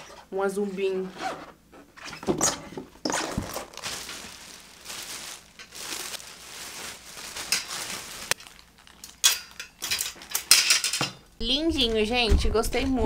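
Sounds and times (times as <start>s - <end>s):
plastic wrapping crinkling: 3.1s - 9.7s.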